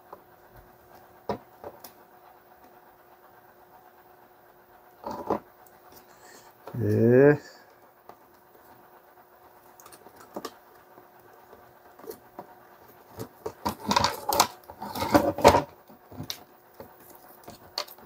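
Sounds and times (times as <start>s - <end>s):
plastic clattering and knocking: 13.1s - 16.4s.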